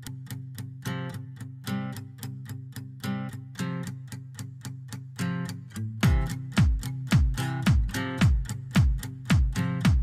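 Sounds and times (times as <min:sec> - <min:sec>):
background music with chords: 0:06.0 - 0:10.0
deep beat: 0:06.0 - 0:10.0.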